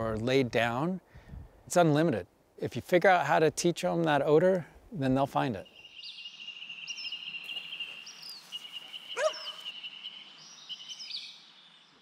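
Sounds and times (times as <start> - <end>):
bird chirps: 5.6 - 12.0
dog yipping: 9.2 - 9.7.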